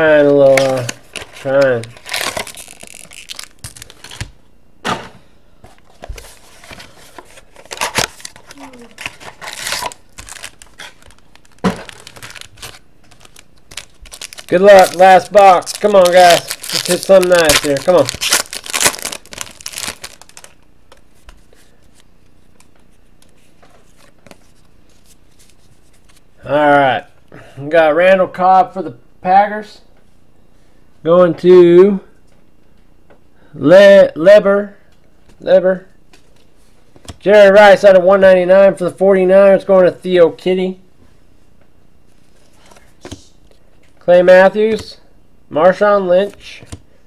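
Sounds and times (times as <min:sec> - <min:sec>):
packaging crinkling and tearing: 0:00.5 - 0:04.4, 0:06.1 - 0:20.6.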